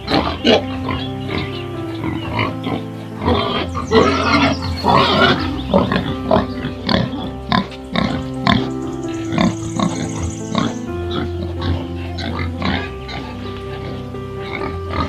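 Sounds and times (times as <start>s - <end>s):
background music: 0.0s - 15.0s
pig grunting: 0.0s - 15.0s.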